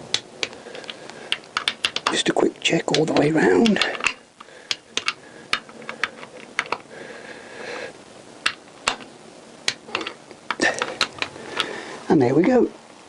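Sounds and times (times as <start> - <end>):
socket ratchet clicks: 0.1 - 2.2, 2.9 - 6.9.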